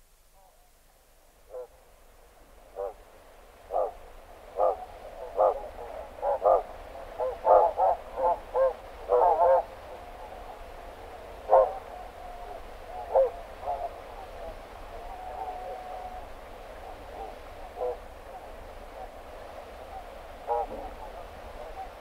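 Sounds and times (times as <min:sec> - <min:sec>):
flock of geese calling: 0:03.7 - 0:04.0, 0:04.6 - 0:22.0
geese short sharp calls: 0:20.0 - 0:21.9.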